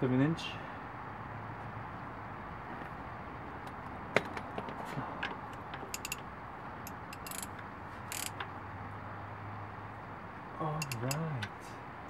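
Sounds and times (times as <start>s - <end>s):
ratchet and socket clicking: 5.8s - 6.2s, 6.8s - 8.5s, 10.8s - 11.5s.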